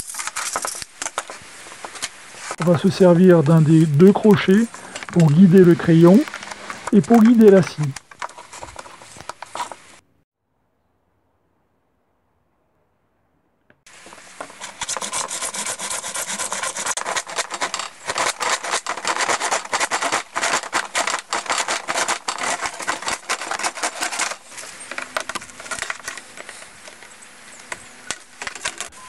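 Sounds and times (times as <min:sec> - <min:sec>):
faint rubbing: 0:01.2 - 0:10.0, 0:13.9 - 0:26.8
hand saw cutting plastic: 0:02.6 - 0:09.7, 0:14.4 - 0:27.0.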